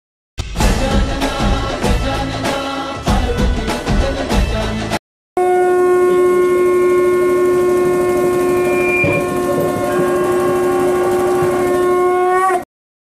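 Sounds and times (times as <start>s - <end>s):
music: 0.4s - 5.0s
conch shell blown in long note: 5.4s - 12.7s.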